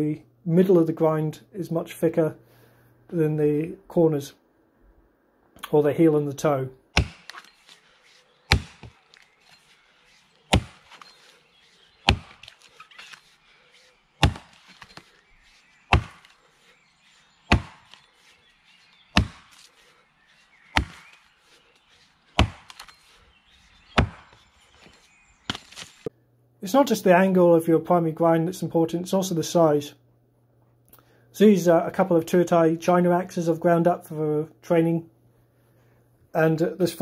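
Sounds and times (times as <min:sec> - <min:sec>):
axe chopping tree trunk: 0:06.9 - 0:07.8, 0:08.5 - 0:09.6, 0:10.5 - 0:11.3, 0:12.0 - 0:13.3, 0:14.2 - 0:15.2, 0:15.9 - 0:16.4, 0:17.5 - 0:18.1, 0:19.1 - 0:19.8, 0:20.7 - 0:21.2, 0:22.3 - 0:23.0, 0:23.9 - 0:24.4, 0:25.5 - 0:26.0.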